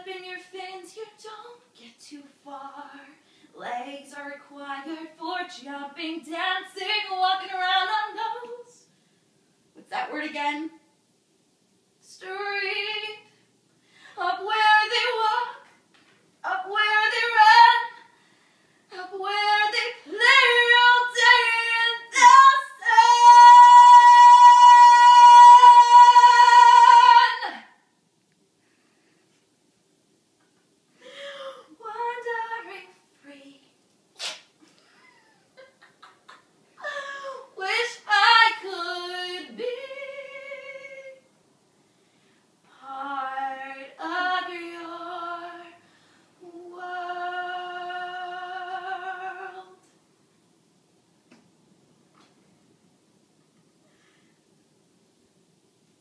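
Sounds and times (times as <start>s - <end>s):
woman singing unaccompanied: 0.0s - 8.9s, 12.0s - 13.3s, 14.2s - 15.8s, 16.4s - 18.1s, 18.9s - 27.8s, 31.6s - 33.8s, 36.8s - 41.3s, 42.7s - 45.8s, 46.4s - 49.9s
woman singing loudly: 19.0s - 27.6s.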